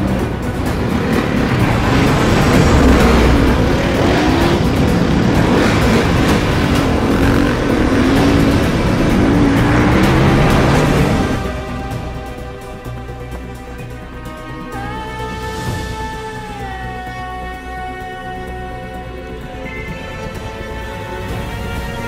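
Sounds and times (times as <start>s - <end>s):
dirt bike engine revving: 0.0s - 14.9s.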